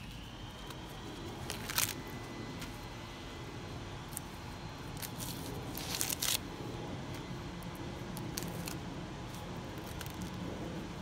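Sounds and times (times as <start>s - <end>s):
corn husks tearing and rustling: 0.0s - 2.8s, 4.1s - 6.4s, 8.2s - 10.5s
husk ripping: 1.4s - 2.0s, 5.0s - 6.4s.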